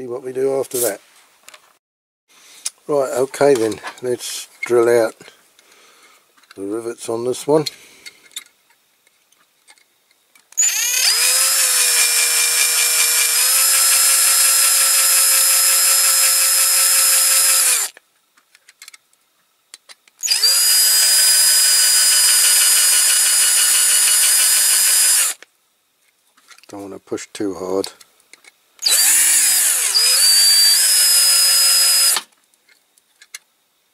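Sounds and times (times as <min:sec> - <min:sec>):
cordless drill whining: 0:10.6 - 0:18.0, 0:20.2 - 0:25.4, 0:28.8 - 0:32.3.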